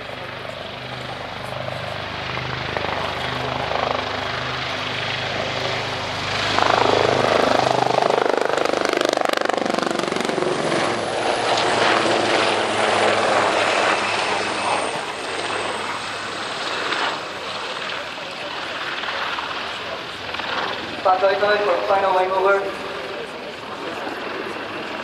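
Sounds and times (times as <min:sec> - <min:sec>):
helicopter rotor blade chop: 0:00.0 - 0:25.0
turbine engine whine: 0:00.0 - 0:25.0.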